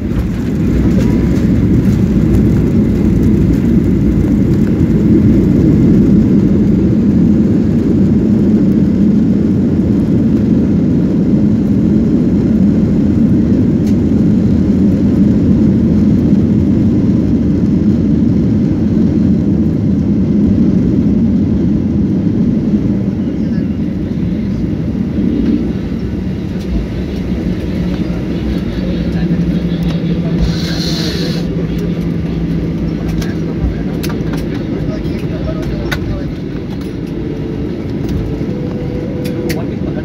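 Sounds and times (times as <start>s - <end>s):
jet cabin engine rumble: 0.0s - 40.0s.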